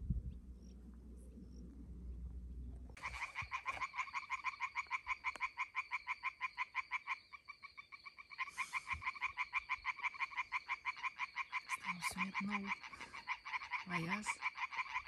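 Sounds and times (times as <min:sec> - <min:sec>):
frogs croaking in chorus: 0:03.0 - 0:15.0.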